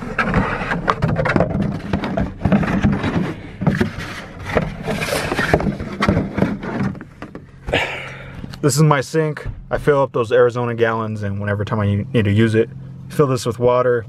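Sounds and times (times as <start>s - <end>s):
plastic jug scraping and knocking: 0.0s - 7.8s.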